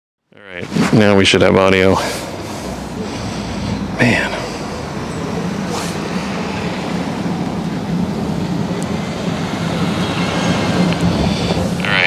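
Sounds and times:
brief whoosh: 4.6s - 7.1s.

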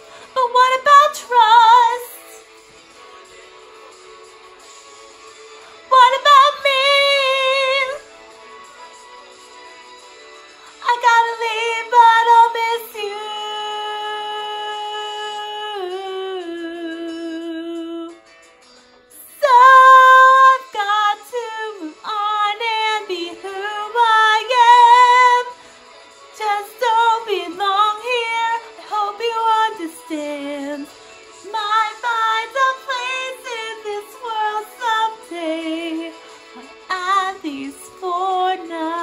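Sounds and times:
young woman singing with vibrato: 0.2s - 2.4s, 5.8s - 8.0s, 10.8s - 18.2s, 19.1s - 25.6s, 26.4s - 39.0s.

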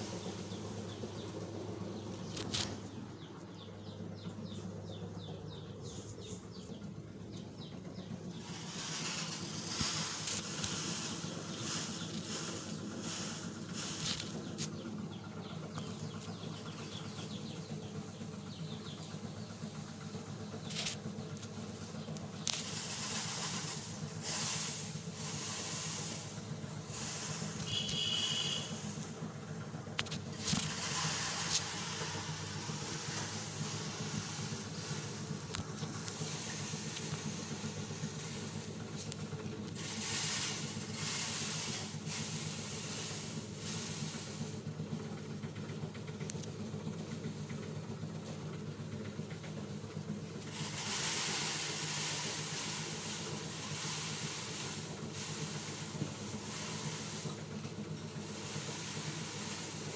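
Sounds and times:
motor humming: 0.0s - 47.6s.

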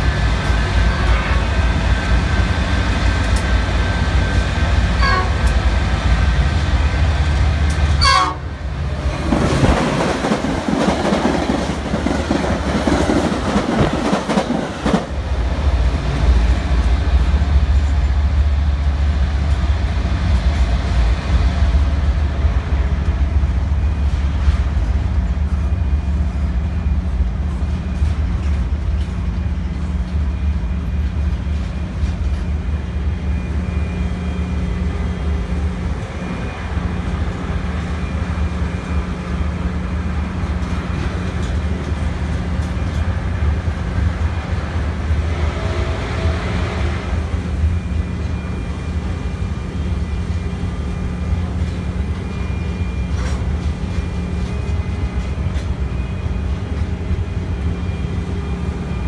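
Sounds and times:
freight train rumbling past: 0.0s - 59.0s
passing commuter train: 0.0s - 59.0s
train horn: 0.8s - 1.7s, 5.0s - 5.6s, 8.0s - 8.6s.

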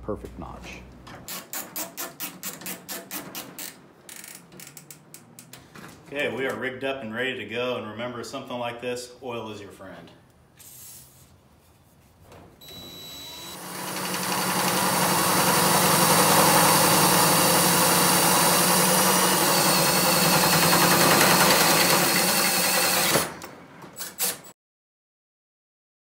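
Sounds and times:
drill hole saw cutting steel tube: 12.9s - 23.4s.

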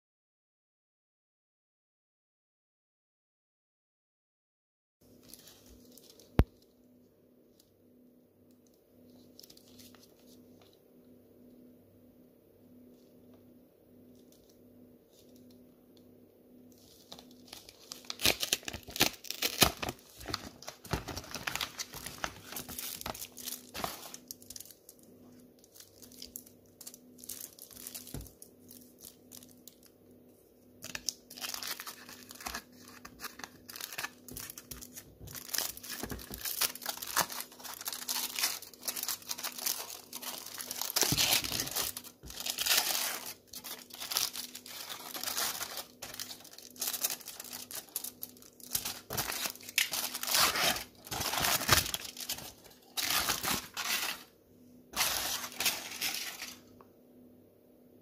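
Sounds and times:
foil wrapper crinkling and tearing: 16.8s - 29.9s, 30.8s - 54.3s, 54.9s - 56.6s.

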